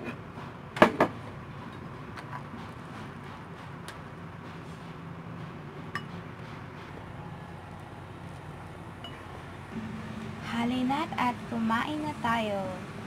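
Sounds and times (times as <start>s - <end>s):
low steady hum: 7.0s - 13.0s.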